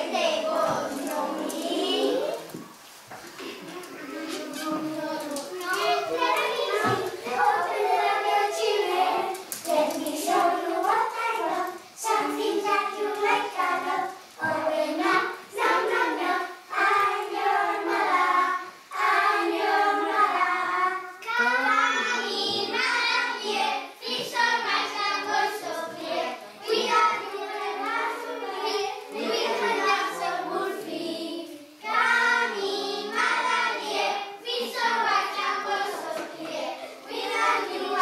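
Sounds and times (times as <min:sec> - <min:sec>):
children singing: 0:00.0 - 0:38.0.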